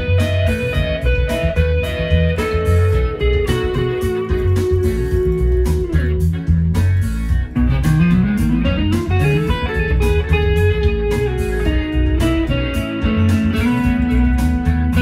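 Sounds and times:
electric guitar lead: 0:00.0 - 0:15.0
low bass part: 0:00.0 - 0:15.0
steady beat: 0:00.0 - 0:15.0.

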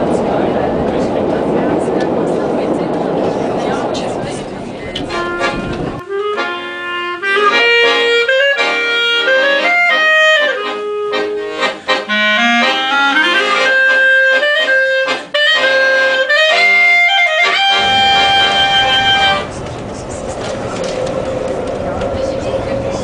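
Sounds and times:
button accordion: 0:05.0 - 0:19.5
clarinet playing: 0:05.1 - 0:19.5.

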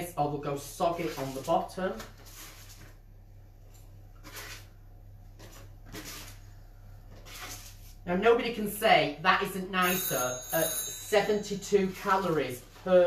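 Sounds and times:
spatula scraping baking tray: 0:00.8 - 0:03.0, 0:04.1 - 0:04.8, 0:05.4 - 0:08.0.

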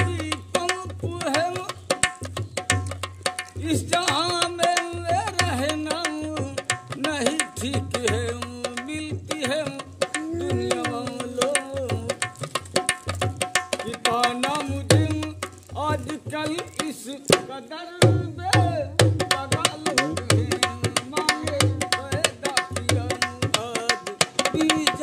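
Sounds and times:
hand drum rhythm: 0:00.0 - 0:25.0
man singing folk song: 0:03.6 - 0:12.2, 0:13.8 - 0:25.0.

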